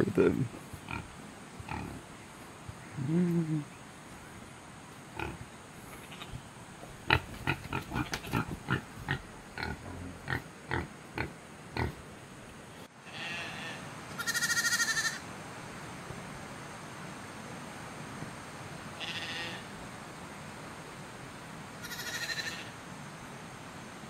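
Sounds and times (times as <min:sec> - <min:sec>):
pig grunting: 0:07.1 - 0:12.0
lamb bleating: 0:13.1 - 0:15.2, 0:19.0 - 0:19.6, 0:21.8 - 0:22.7.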